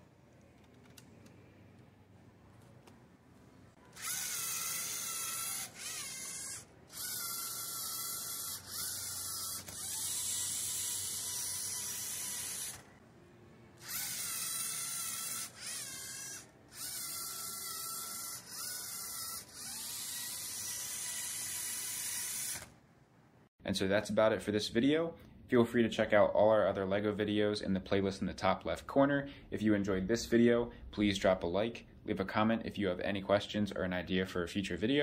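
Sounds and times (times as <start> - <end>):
robot motors and gears whirring: 4.0 - 12.9, 13.8 - 22.7.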